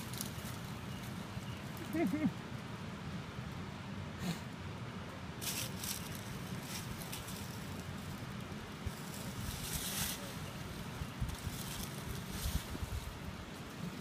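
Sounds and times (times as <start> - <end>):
dry leaves crackling and rustling: 0.0 - 3.4, 5.3 - 14.0
wind rumble on microphone: 5.7 - 14.0.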